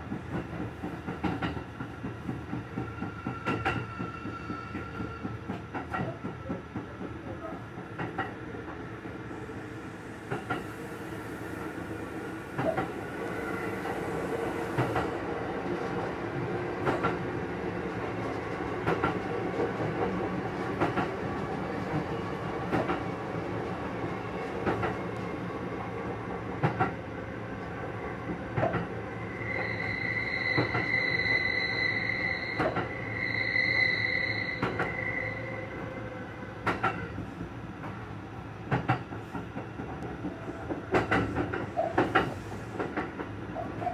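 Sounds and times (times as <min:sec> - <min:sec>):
train rumble: 0:00.0 - 0:43.9
high wheel squeal: 0:29.1 - 0:36.2.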